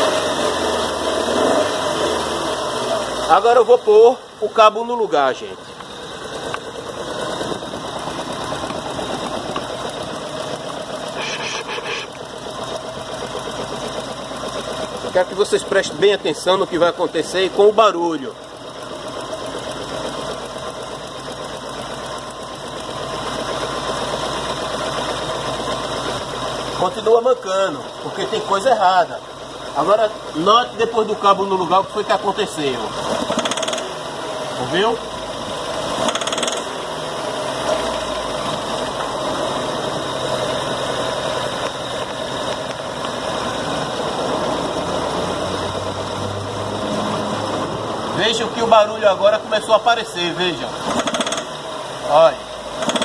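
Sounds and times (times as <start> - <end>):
car engine idling unevenly: 0.0 - 53.0
metallic pinging rattle: 52.8 - 53.0.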